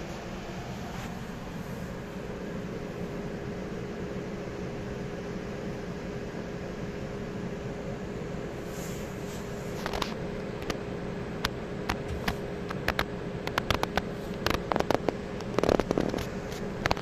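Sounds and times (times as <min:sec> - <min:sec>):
steady low hum: 0:00.0 - 0:17.0
sharp clicks and crackles: 0:11.4 - 0:17.0.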